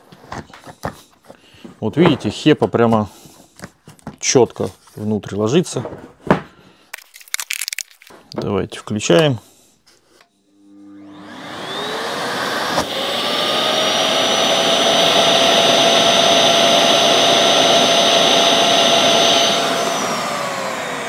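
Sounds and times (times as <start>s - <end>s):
vacuum cleaner motor whining: 10.5s - 21.0s.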